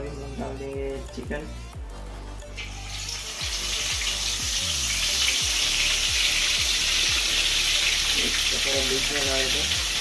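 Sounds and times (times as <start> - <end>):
chicken sizzling in oil: 2.6 - 10.0.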